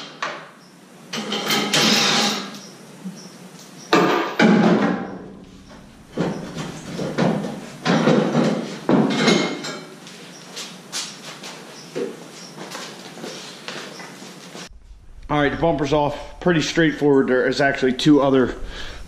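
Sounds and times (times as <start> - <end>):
metal bumper knocking: 4.0 - 9.6.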